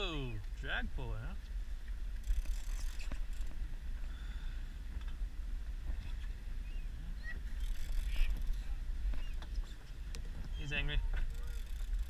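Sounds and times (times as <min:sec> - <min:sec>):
boat engine rumble: 0:00.0 - 0:12.0.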